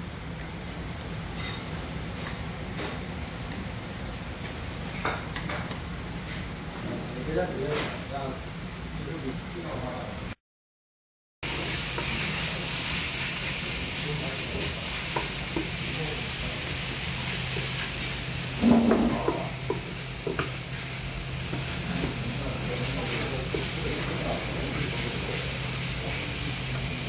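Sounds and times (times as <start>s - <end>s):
food sizzling on iron pan: 11.4s - 27.0s.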